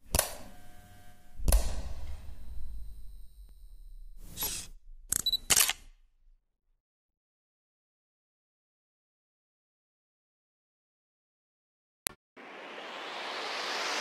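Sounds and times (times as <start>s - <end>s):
camera shutter click: 4.4s - 6.0s
swish: 12.4s - 14.0s.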